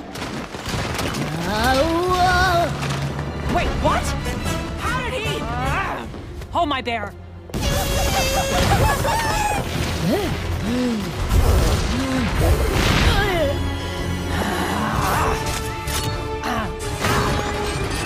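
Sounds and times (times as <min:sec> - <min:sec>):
soundtrack music: 0:01.8 - 0:18.0.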